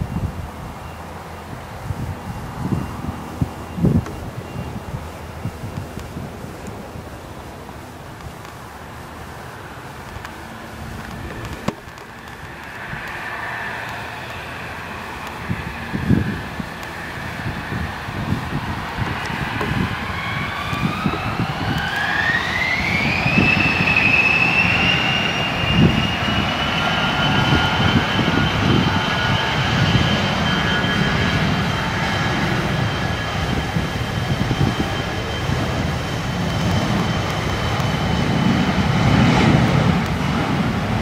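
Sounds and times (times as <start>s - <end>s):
jet engine whine: 0.0s - 41.0s
low jet rumble: 0.0s - 41.0s.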